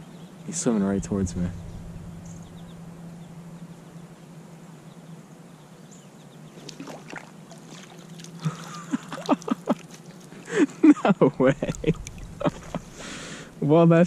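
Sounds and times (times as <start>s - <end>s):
creek water splashing: 6.5s - 13.6s
sharp splashes: 6.6s - 10.7s, 11.4s - 13.6s.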